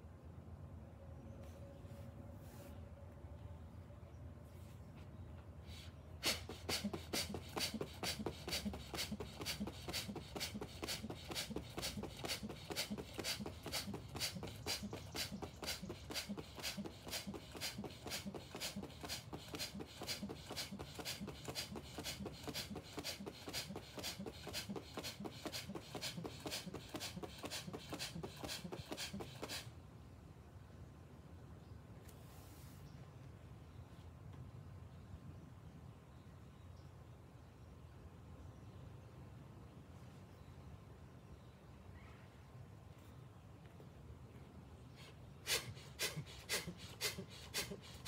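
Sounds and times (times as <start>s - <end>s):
rapid forceful rhythmic breathing: 5.6s - 29.7s, 45.0s - 48.0s.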